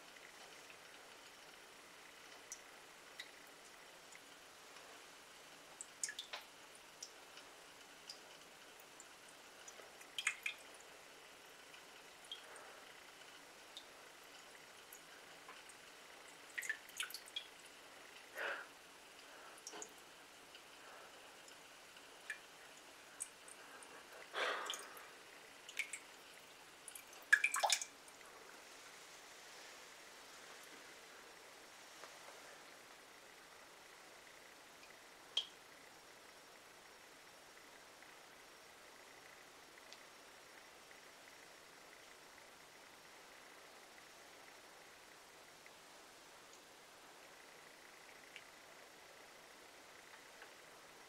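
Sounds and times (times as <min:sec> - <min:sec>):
faint water drips: 0:00.0 - 0:36.2, 0:45.5 - 0:51.0
water trickling from faucet: 0:05.7 - 0:18.4, 0:19.0 - 0:28.3
water dripping into a mug: 0:05.8 - 0:06.4, 0:08.8 - 0:10.8, 0:13.8 - 0:17.7, 0:24.6 - 0:28.2, 0:34.8 - 0:35.6.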